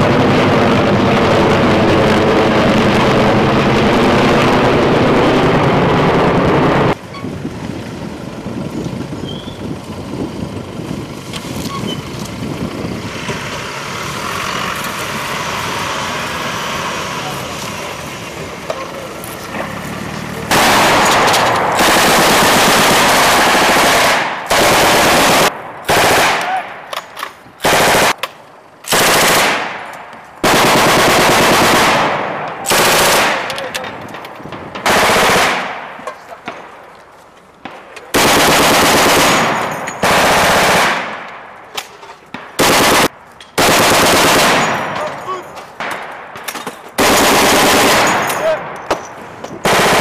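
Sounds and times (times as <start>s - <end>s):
machine gun firing bursts: 20.5s - 26.4s, 27.6s - 28.2s, 28.9s - 29.8s, 30.4s - 33.5s, 34.8s - 35.8s, 38.1s - 41.2s, 42.6s - 45.0s, 47.0s - 48.3s, 49.6s - 50.0s.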